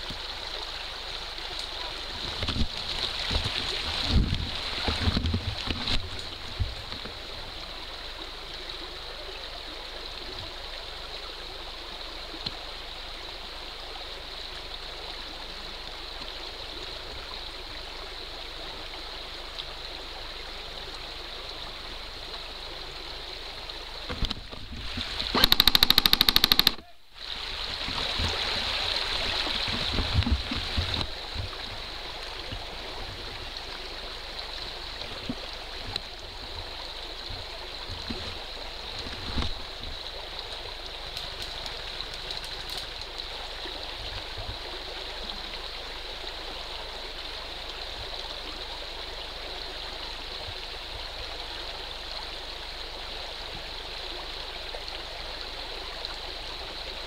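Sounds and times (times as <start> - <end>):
shallow stream rushing: 0.0 - 57.0
splashing and rustling: 1.6 - 7.3, 27.3 - 33.5, 34.8 - 44.6
loud fast rattle: 25.4 - 26.8.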